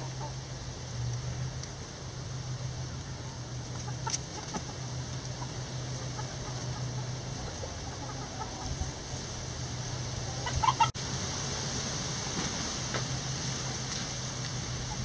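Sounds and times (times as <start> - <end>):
hens clucking: 0.0 - 1.2, 2.8 - 11.0
low hum: 0.0 - 15.0.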